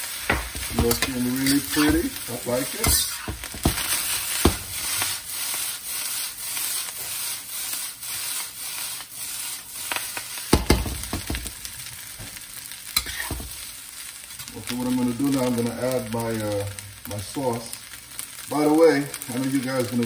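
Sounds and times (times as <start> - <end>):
spatula scraping a wok: 0.0 - 11.6, 12.9 - 13.7
rice sizzling in a wok: 0.0 - 20.0
wok knocking on cooktop: 0.2 - 1.1, 3.2 - 4.7, 10.5 - 11.6.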